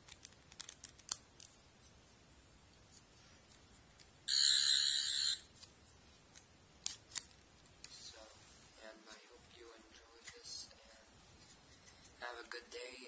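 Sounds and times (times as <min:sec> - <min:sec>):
toy buzzy electronic tone: 0:04.3 - 0:05.5.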